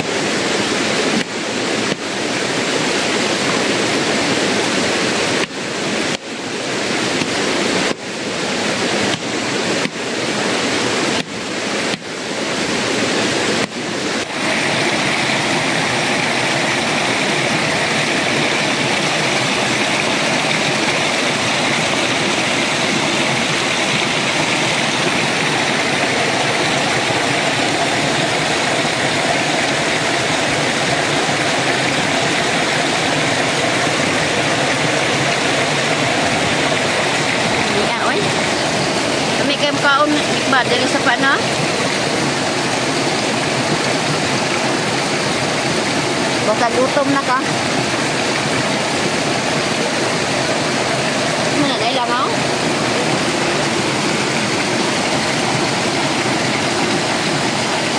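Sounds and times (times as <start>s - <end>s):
river rushing over stones: 0.0s - 57.9s.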